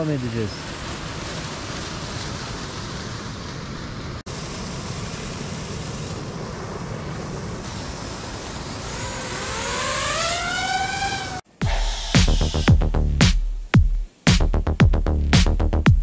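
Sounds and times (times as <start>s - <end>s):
rising tone with overtones: 8.4s - 15.9s.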